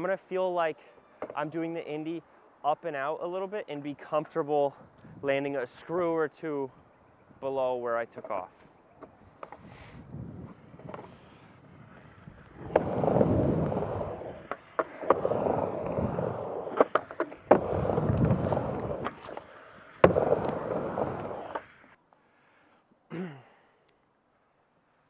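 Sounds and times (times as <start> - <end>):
skateboard wheels rolling on ramp: 8.1 - 22.0
skateboard clacking on coping: 11.9 - 21.8.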